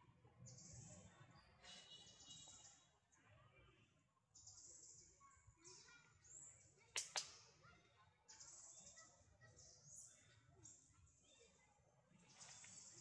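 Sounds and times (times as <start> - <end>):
sharp clicks: 7.0 - 7.4.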